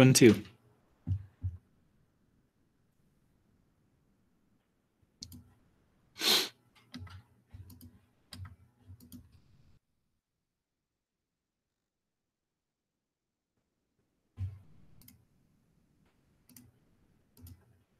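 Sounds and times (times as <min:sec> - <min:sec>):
mouse and keyboard clicks: 0:05.2 - 0:05.5.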